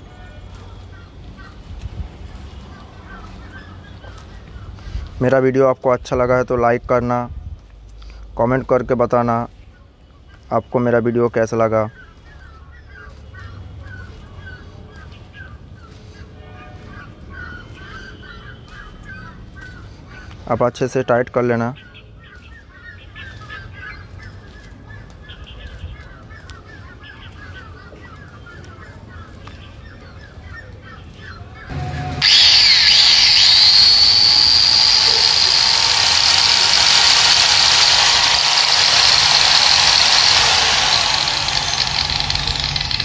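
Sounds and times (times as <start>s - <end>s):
angle grinder high whine: 31.7s - 43.0s.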